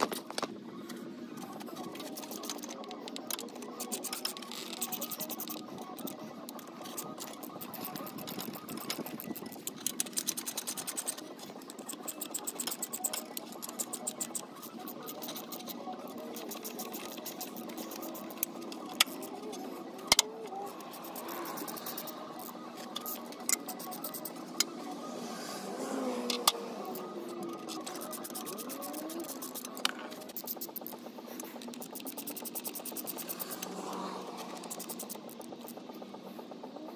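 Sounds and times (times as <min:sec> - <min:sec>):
ratchet wrench clicking rapidly: 0:03.8 - 0:19.4, 0:26.9 - 0:33.7, 0:34.4 - 0:35.9.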